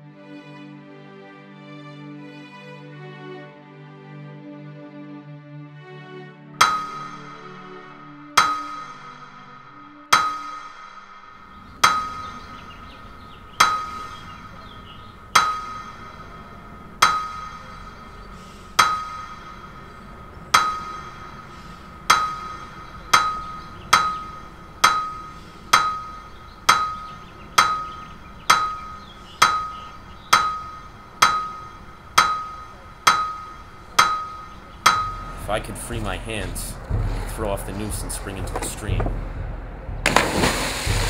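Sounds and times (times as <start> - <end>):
sharp metallic strikes with ringing: 6.6 - 36.1.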